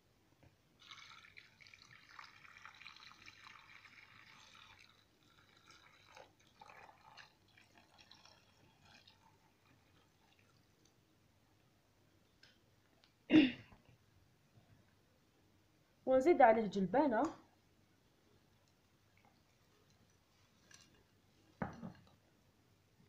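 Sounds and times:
water pouring and dripping: 0.8 - 11.0, 18.4 - 22.2.

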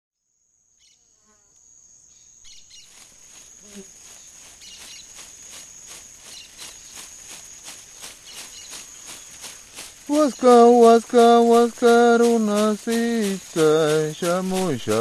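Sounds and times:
cricket chirring: 0.2 - 15.0
leaf-bundle rattle shaking: 5.1 - 15.0.

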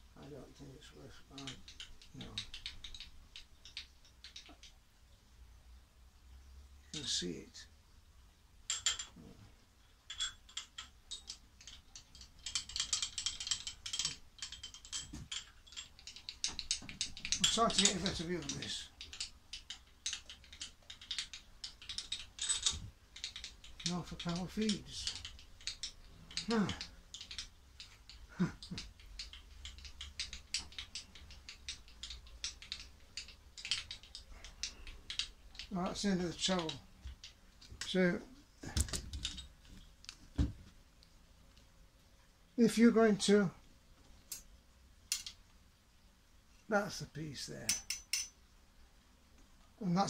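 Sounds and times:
handwheel clicking and ticking: 10.1 - 37.3.

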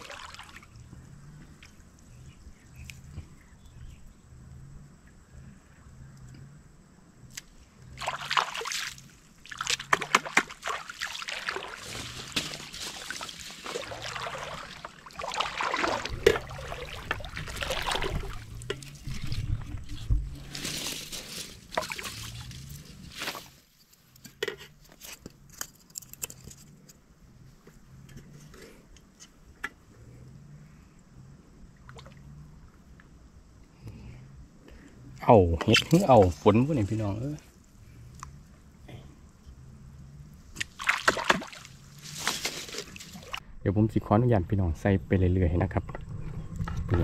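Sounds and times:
water sloshing and splashing: 0.0 - 1.8, 7.9 - 23.7, 40.4 - 43.4
faint low regular pulsing: 0.6 - 8.2, 10.6 - 23.2.

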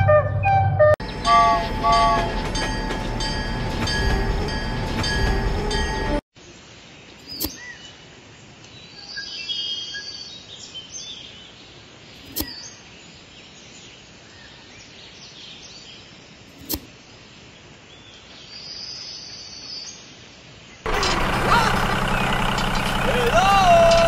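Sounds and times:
birds chirping: 6.6 - 24.0.

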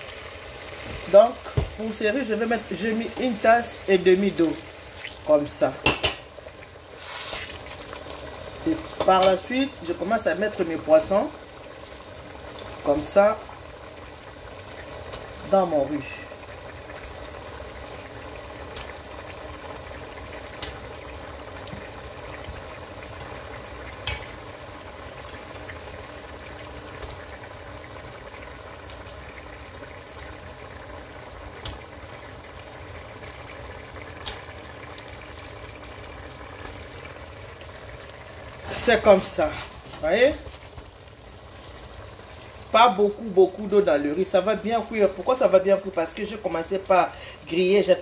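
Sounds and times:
sauce bubbling in a pan: 0.0 - 48.0.

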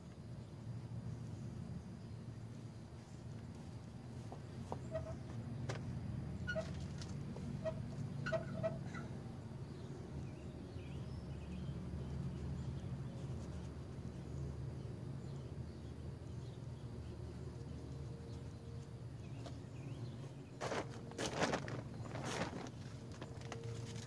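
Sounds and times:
footstep scuffs and rustles: 2.8 - 8.1, 17.9 - 24.0.

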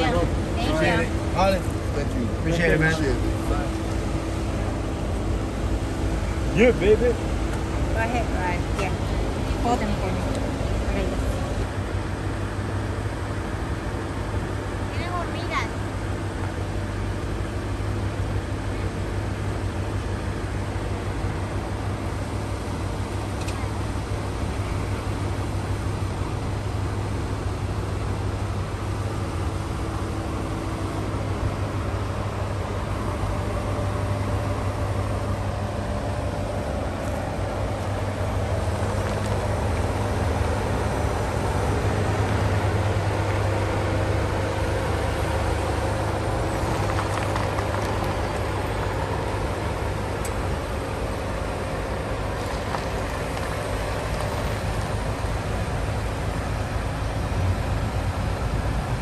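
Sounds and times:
car engine hum: 0.0 - 59.0
road noise: 0.0 - 59.0.

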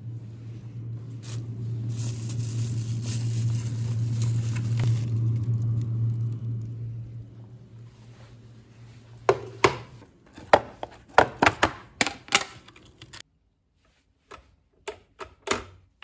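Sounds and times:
plastic bags rustling: 0.0 - 9.6
steady low hum: 0.0 - 11.0.

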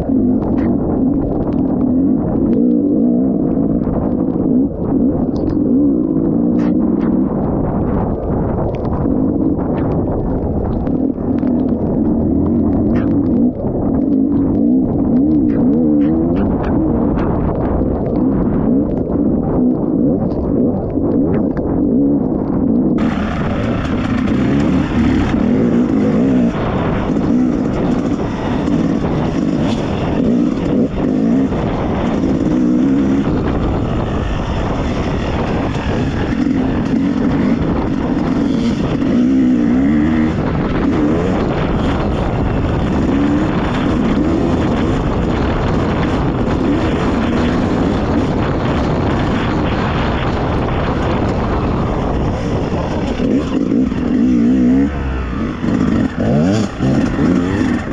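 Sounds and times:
dirt bike engine revving: 23.0 - 57.9.

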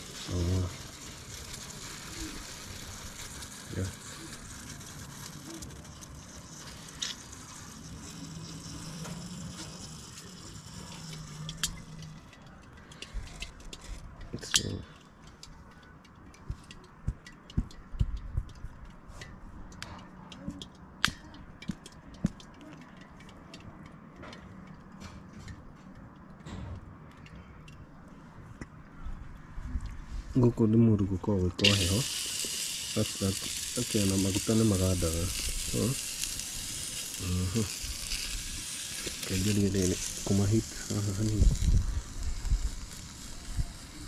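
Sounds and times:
hot pot hissing: 0.0 - 15.5, 31.5 - 44.0
oil sizzling and popping: 0.0 - 24.9, 31.5 - 44.0.

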